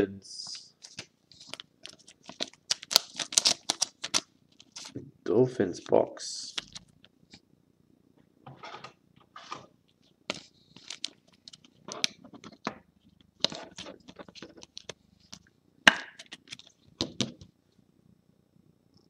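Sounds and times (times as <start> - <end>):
plastic card sleeves rustling: 0.5 - 5.0, 9.4 - 15.5, 16.2 - 17.4.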